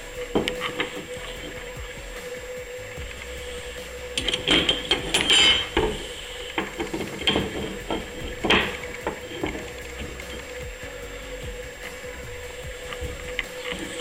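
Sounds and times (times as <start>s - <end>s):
metal tracks clattering and knocking: 4.1s - 10.8s.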